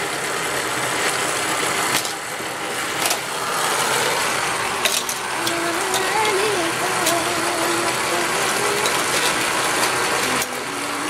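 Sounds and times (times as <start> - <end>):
toy track booster whirring: 0.0 - 11.0
toy cars clacking on track: 1.9 - 2.2, 4.8 - 11.0.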